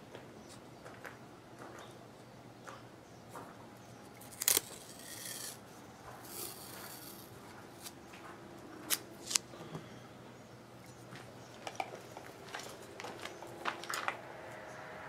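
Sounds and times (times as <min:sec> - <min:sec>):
hands rustling test leads: 0:04.1 - 0:09.5, 0:10.8 - 0:14.2.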